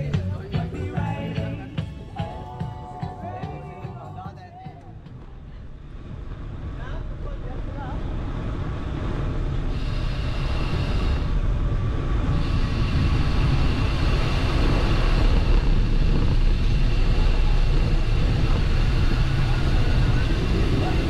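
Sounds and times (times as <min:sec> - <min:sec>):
bicycle tyres rolling: 0:05.1 - 0:21.0
wind on microphone: 0:05.1 - 0:21.0.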